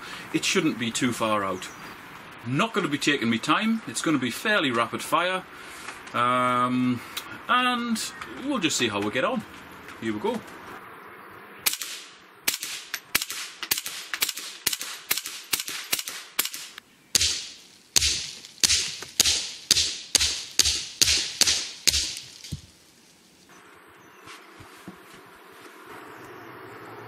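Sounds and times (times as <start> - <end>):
rifle firing rapid shots: 11.7 - 22.3.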